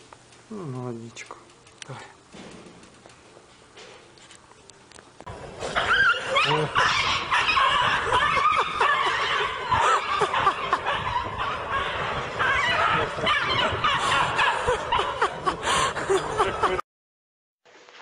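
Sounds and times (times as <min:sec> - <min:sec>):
people laughing: 0:07.4 - 0:11.7, 0:12.6 - 0:16.8.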